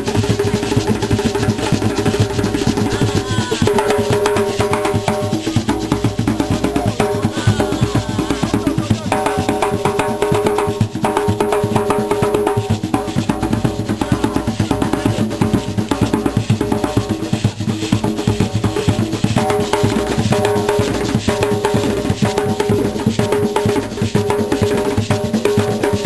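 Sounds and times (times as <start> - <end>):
djembe drums playing: 0.0 - 26.0.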